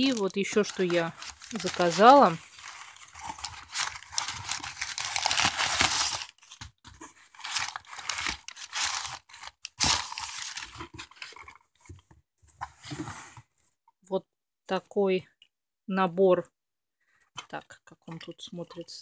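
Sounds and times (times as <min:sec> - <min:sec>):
packing paper rustling: 0:00.0 - 0:12.0.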